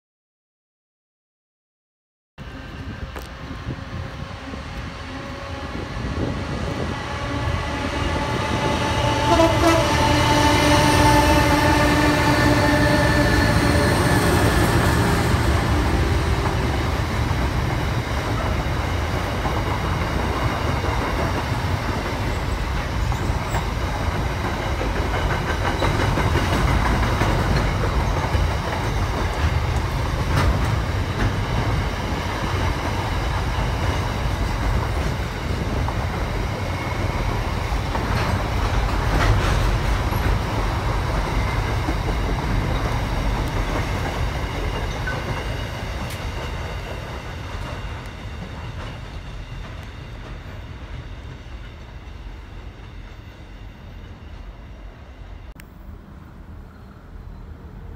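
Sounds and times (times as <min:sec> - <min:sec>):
train wheels rumbling on rails: 0:02.4 - 0:57.9
wheels clacking over rail joints: 0:08.6 - 0:51.7.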